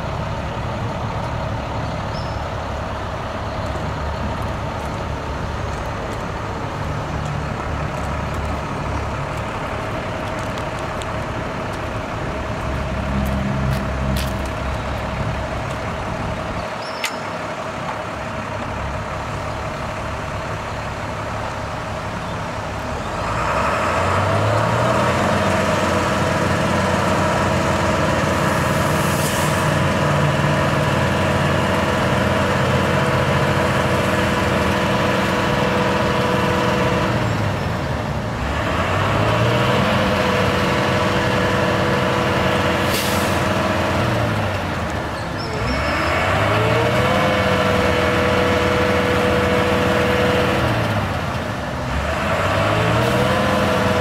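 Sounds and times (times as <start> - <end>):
diesel truck engine running: 0.0 - 54.0.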